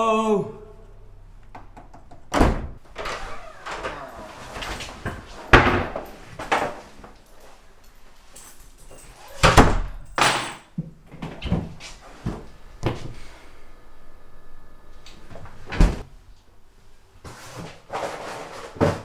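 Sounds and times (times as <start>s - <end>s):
fridge door thumping shut: 2.3s - 2.8s.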